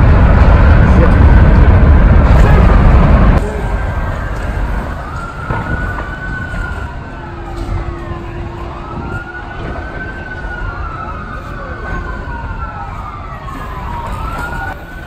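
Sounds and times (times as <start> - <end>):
loud low rumble: 0.0 - 10.3
emergency sirens wailing: 0.0 - 15.0.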